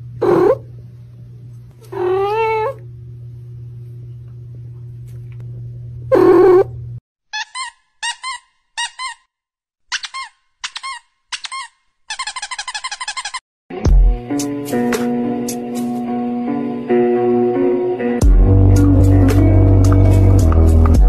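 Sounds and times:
low steady hum: 0.0s - 7.0s
kittens mewing: 0.2s - 0.7s, 1.8s - 2.8s
cat meowing: 1.8s - 2.8s.

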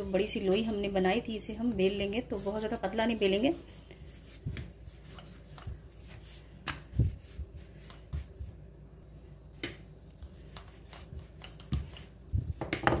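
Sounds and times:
rolling pin knocking on marble: 12.6s - 13.0s.

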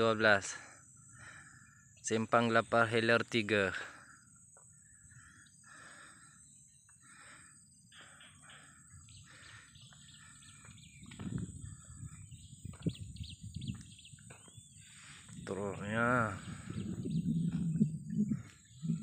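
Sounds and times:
birds chirping: 0.0s - 19.0s
high insect drone: 0.0s - 19.0s
low rumbles on microphone: 10.9s - 14.5s, 15.2s - 19.0s.

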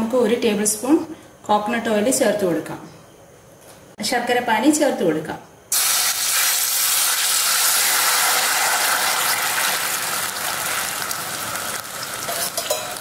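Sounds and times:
syrup sizzling in hot oil: 5.7s - 13.0s.

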